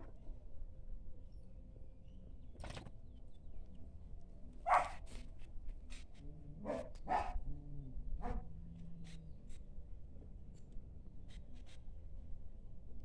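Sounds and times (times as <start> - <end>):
dog barking: 4.7 - 5.0, 6.6 - 7.4, 8.2 - 8.4.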